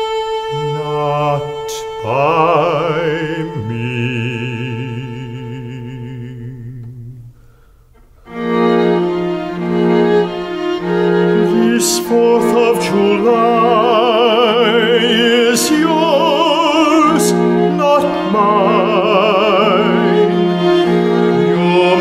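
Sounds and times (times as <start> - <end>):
orchestra strings holding low notes: 0.0 - 22.0
man singing operatically: 0.5 - 7.4, 11.3 - 22.0.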